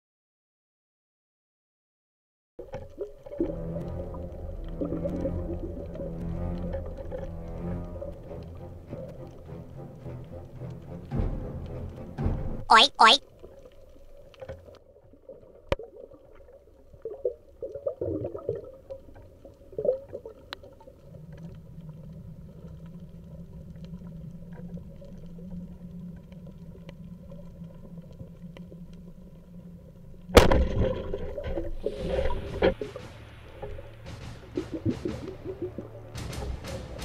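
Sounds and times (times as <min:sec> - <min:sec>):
bubbling: 0:13.5 - 0:28.8
rushing splashy water: 0:30.4 - 0:37.0.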